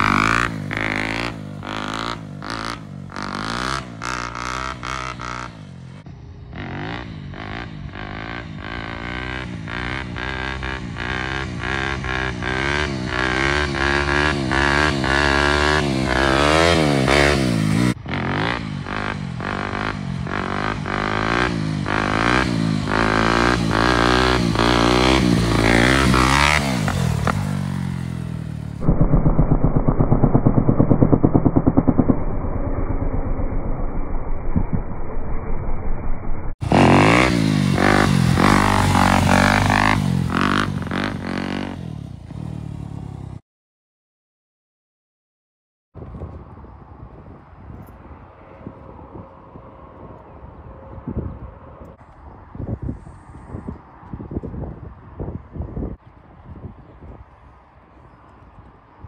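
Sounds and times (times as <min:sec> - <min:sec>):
dirt bike engine revving: 0:00.0 - 0:34.8, 0:36.6 - 0:43.4.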